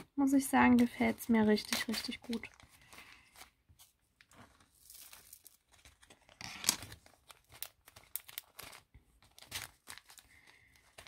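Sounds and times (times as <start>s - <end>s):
plastic bags crinkling: 4.2s - 11.0s.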